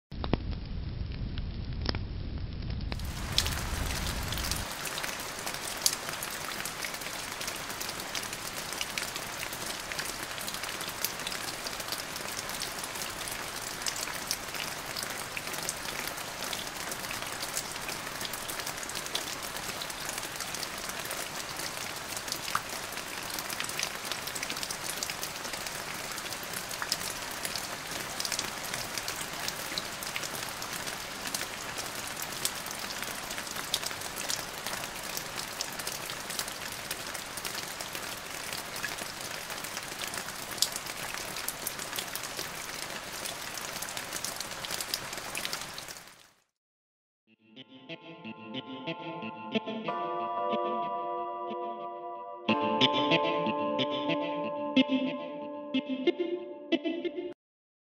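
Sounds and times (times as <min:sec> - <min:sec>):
steady rain falling: 0:02.8 - 0:46.5.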